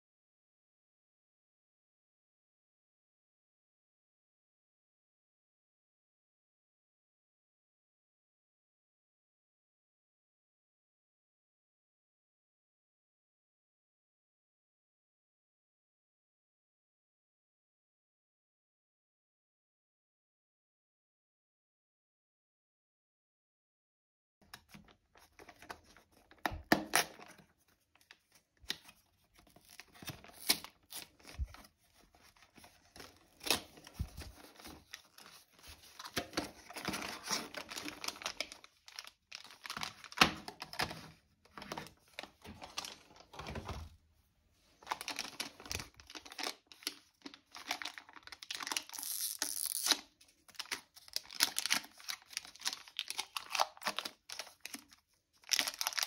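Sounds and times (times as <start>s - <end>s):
foil packs crinkling and tearing: 29.5s - 31.7s, 32.3s - 40.8s, 44.8s - 56.0s.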